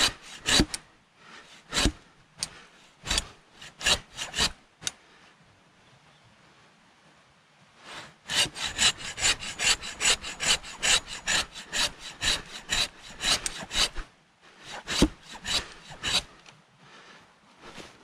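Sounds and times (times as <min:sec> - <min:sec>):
hand saw cutting wood: 0:00.0 - 0:00.8, 0:01.5 - 0:04.6, 0:08.3 - 0:16.4.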